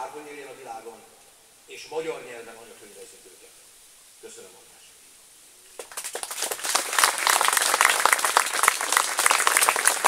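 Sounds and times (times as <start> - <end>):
audience applauding: 5.8 - 10.0.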